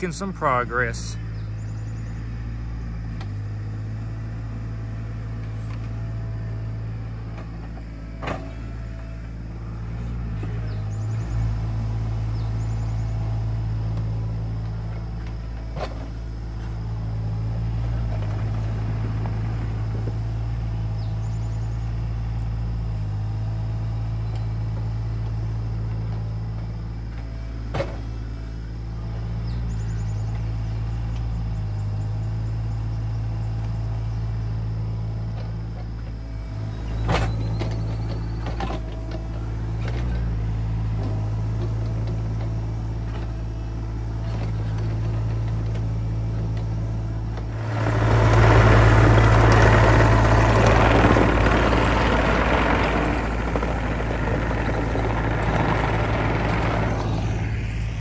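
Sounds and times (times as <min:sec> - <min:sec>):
excavator diesel engine: 0:00.0 - 0:58.0.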